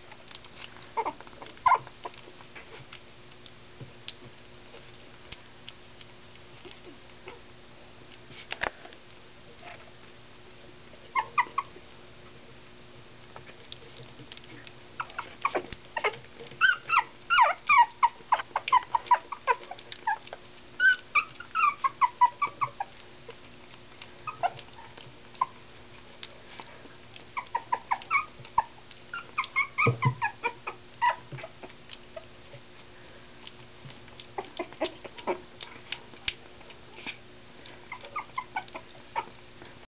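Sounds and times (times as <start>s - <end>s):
puppies squeaking and whimpering: 1.0s - 2.2s, 11.1s - 11.7s, 15.0s - 23.0s, 24.2s - 25.6s, 27.4s - 32.3s, 34.3s - 35.8s, 37.9s - 39.4s.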